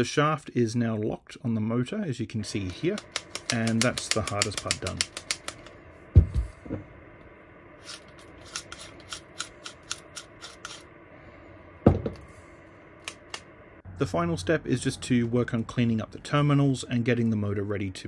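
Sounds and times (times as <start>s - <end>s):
drill gearbox clicking: 2.6s - 5.7s
motor housing handling thumps: 11.8s - 12.2s.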